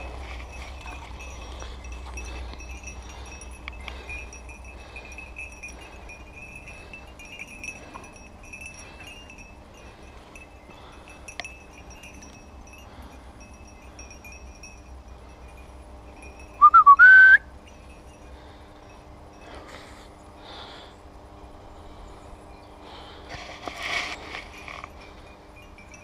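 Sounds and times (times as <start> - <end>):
person whistling: 16.6 - 17.5.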